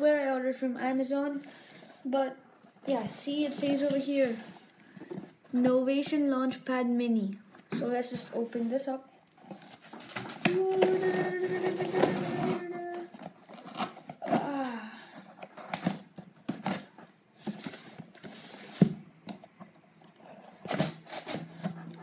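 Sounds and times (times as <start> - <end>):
cardboard box scrapes and rustles: 2.9 - 4.7, 11.0 - 14.6, 17.4 - 19.0.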